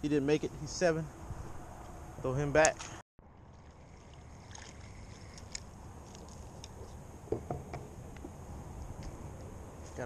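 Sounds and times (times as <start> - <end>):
wind: 0.0 - 10.0
lapping water: 3.4 - 6.8.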